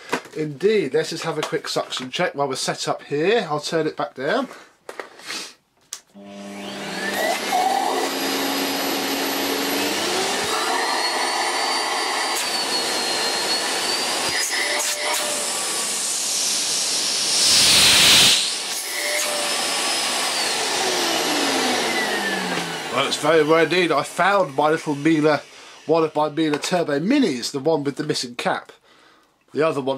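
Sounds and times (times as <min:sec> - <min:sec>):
vacuum cleaner motor whine: 0:06.2 - 0:26.7
rush of air: 0:17.2 - 0:18.5.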